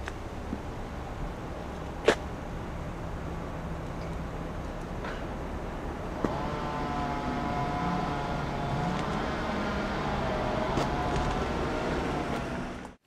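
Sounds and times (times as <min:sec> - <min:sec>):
vehicle engine rumbling: 0:00.0 - 0:13.0
whining tone: 0:06.1 - 0:13.0.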